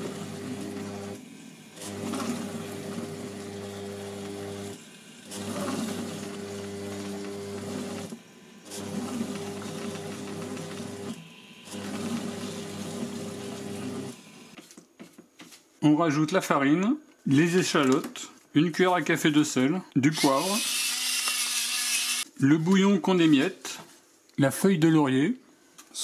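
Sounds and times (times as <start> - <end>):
food processor motor stirring: 0.0 - 14.6, 20.2 - 22.3.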